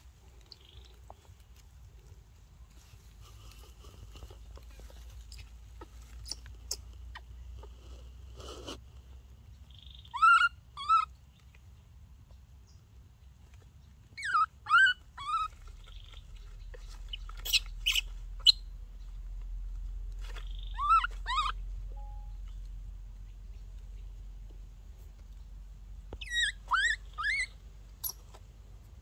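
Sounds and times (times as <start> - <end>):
baby monkey crying: 10.0 - 11.1, 14.2 - 15.5, 20.6 - 21.6, 26.2 - 28.2.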